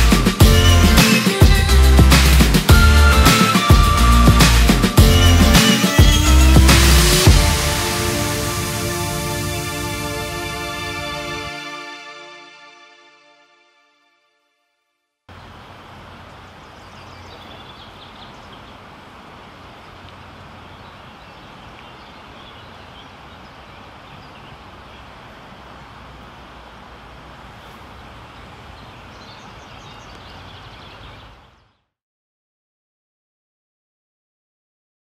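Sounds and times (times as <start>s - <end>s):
birds chirping: 15.3s - 25.4s, 27.2s - 31.9s.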